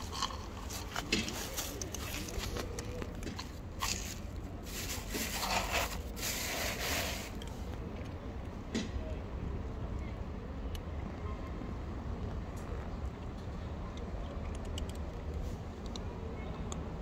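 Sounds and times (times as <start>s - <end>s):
cat crunching dry kibble: 0.0s - 7.5s.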